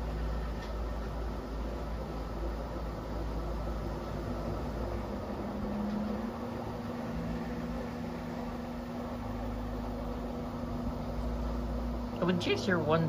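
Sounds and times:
washing machine motor hum: 0:00.0 - 0:13.0.

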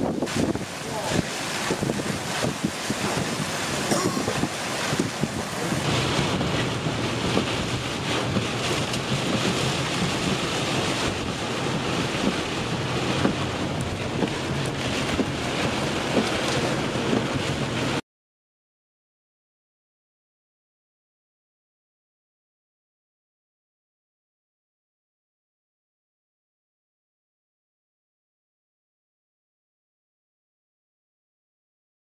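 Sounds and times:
torrential rain: 0:00.0 - 0:18.0
violent wind buffeting microphone: 0:00.0 - 0:18.0.

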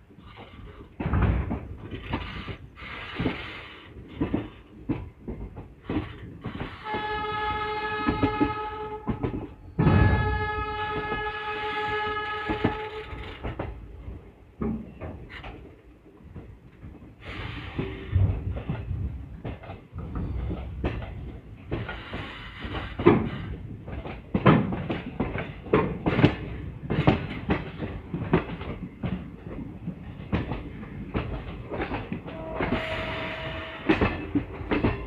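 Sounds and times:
train wheels clattering over rail joints: 0:00.0 - 0:35.0
train horn blasts: 0:06.8 - 0:13.4, 0:32.2 - 0:34.4.

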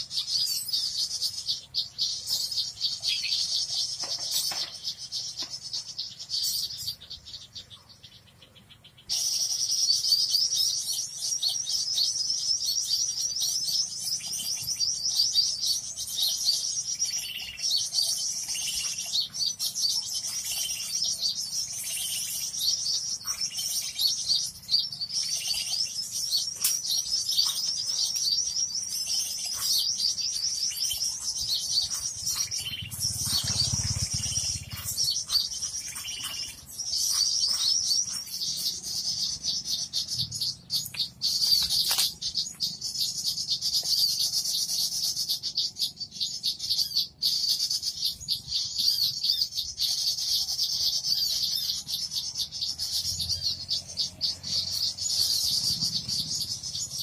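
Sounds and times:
songbirds chirping and twittering: 0:00.0 - 0:57.0
faint low rumble: 0:31.2 - 0:36.7.

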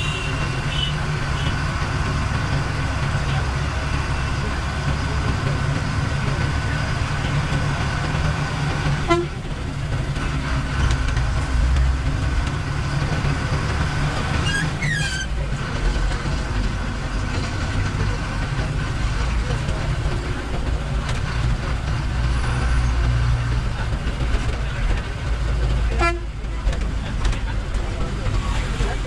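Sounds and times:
bus horn toots: 0:00.0 - 0:01.6, 0:09.0 - 0:09.5, 0:14.4 - 0:15.4, 0:25.9 - 0:26.4
diesel bus engine rumbling: 0:00.0 - 0:29.0.

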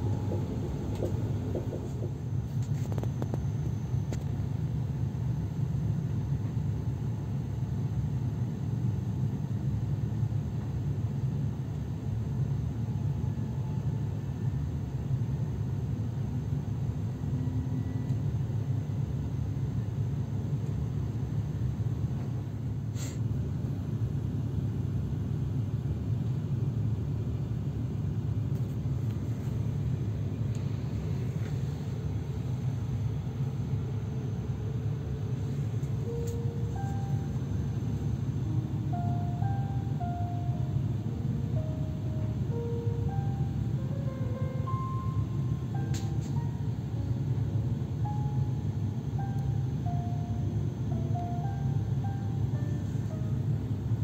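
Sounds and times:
train rumble inside carriage: 0:00.0 - 0:54.0
brief click: 0:45.9 - 0:46.4.

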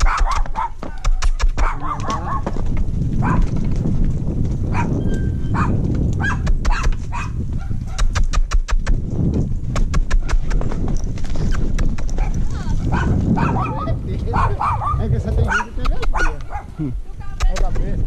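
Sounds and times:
dog barking: 0:00.0 - 0:02.5, 0:03.2 - 0:03.5, 0:04.7 - 0:08.1, 0:12.2 - 0:16.9
hooves thudding and scuffing: 0:00.0 - 0:14.6
wind rumble on camera: 0:00.0 - 0:18.0.

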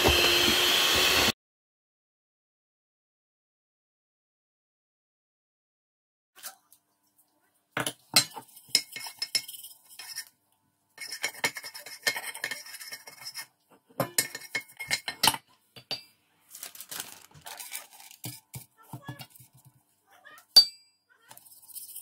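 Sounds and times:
metal kitchenware clinking: 0:07.8 - 0:10.3, 0:11.0 - 0:16.2, 0:20.5 - 0:20.9.

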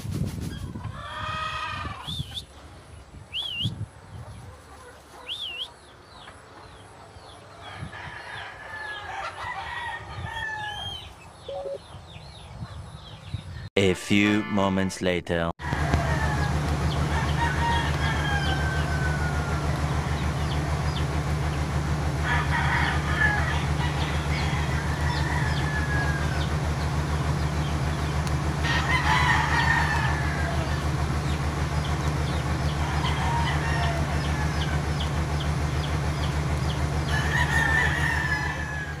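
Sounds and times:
cockatoo crowing calls: 0:00.6 - 0:02.5, 0:07.6 - 0:11.8, 0:15.6 - 0:21.0, 0:22.2 - 0:35.5, 0:36.7 - 0:39.0
steady low hum: 0:15.6 - 0:39.0.

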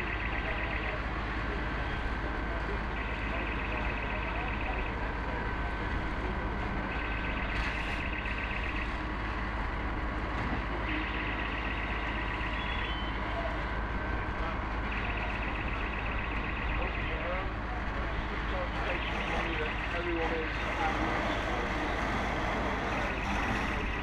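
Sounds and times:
low engine rumble: 0:00.0 - 0:24.0
warbling electronic alarm: 0:10.8 - 0:13.3, 0:14.9 - 0:17.3.

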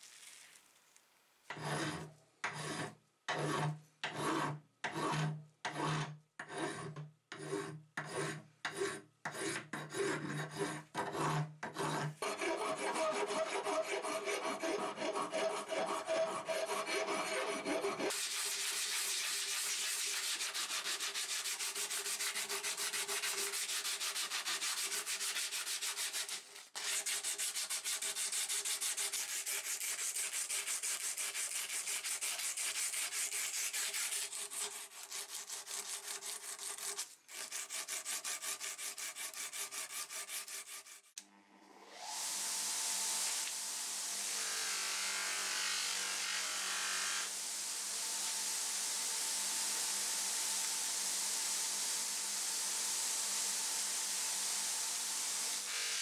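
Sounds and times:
file scraping metal: 0:01.5 - 0:41.2.

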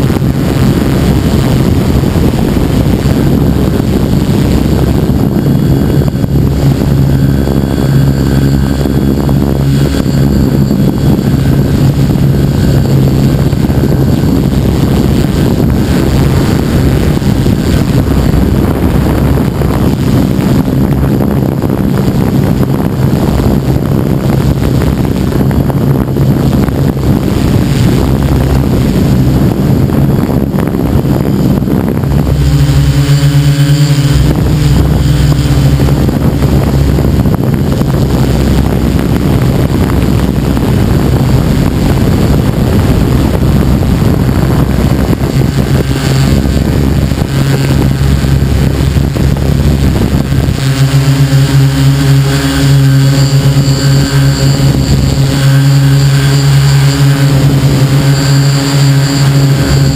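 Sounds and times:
drone motors and propellers droning: 0:00.0 - 0:59.9
wind buffeting microphone: 0:00.0 - 0:59.9.

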